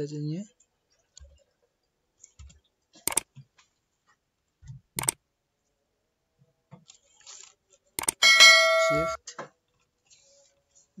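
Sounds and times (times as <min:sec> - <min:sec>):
mouse click sound effects: 0:03.0 - 0:03.3, 0:05.0 - 0:05.2, 0:08.0 - 0:08.2.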